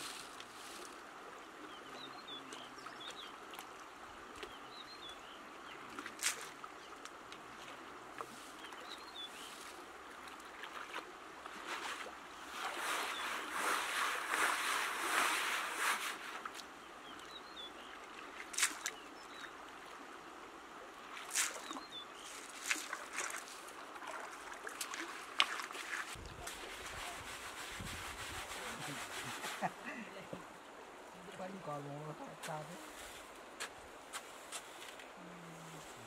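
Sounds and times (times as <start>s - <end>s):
flowing stream: 0.0s - 36.0s
water sloshing and splashing: 5.7s - 20.0s, 21.0s - 29.6s.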